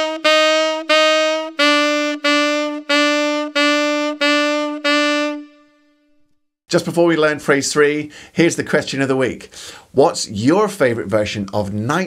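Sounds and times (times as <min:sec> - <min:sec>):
saxophone playing slow phrase: 0:00.0 - 0:06.4.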